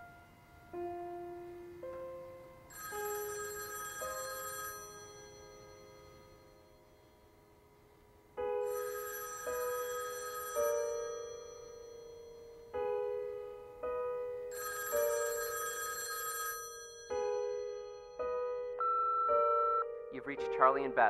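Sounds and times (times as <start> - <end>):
telephone chiming ring: 2.7 - 7.2, 8.5 - 13.2, 14.4 - 20.2.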